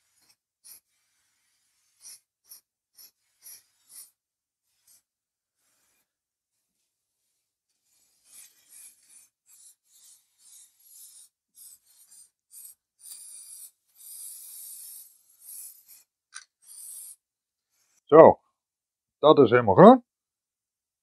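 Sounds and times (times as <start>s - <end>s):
spray paint can hissing: 0.6s - 4.1s.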